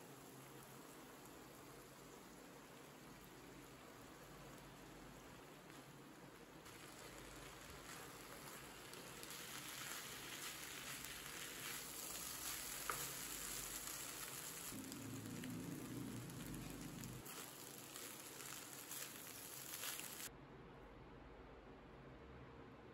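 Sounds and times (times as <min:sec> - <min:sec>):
rice and vegetables sizzling in pan: 0:00.0 - 0:20.3
wooden spatula scraping and tapping: 0:07.7 - 0:14.7.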